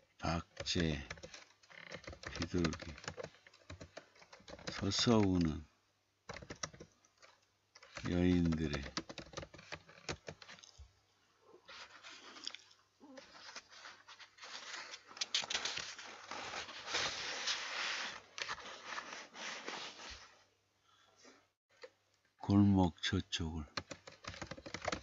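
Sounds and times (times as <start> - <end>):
scattered clicks: 0.4 - 5.5, 6.3 - 10.7, 23.7 - 25.0
rustling and scraping: 0.6 - 5.4, 6.3 - 20.5
computer keyboard keystrokes: 0.6 - 5.5, 6.3 - 10.6, 23.7 - 25.0.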